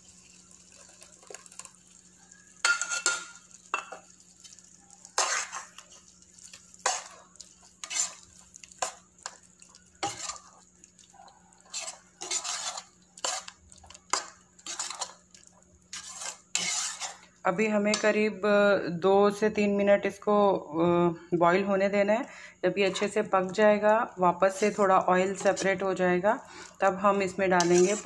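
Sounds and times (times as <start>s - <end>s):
metal spatula scraping pan: 2.6s - 3.9s, 5.1s - 10.6s, 11.5s - 15.2s, 15.9s - 17.3s, 24.5s - 25.8s, 27.2s - 28.0s.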